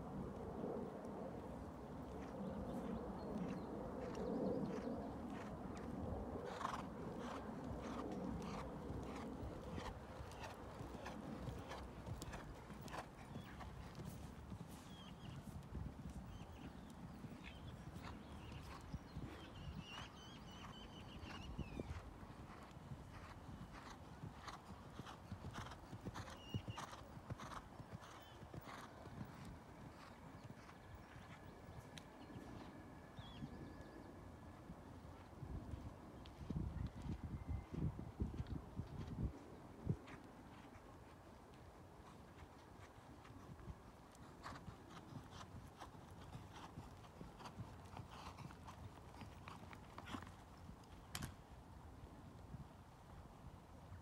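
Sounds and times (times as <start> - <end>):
hoofbeats on sand: 2.2 - 32.5.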